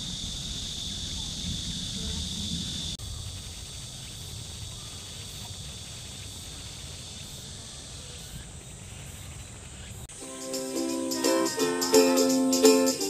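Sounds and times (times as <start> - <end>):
low rumble: 0.0 - 3.1
insects hissing in trees: 0.0 - 13.0.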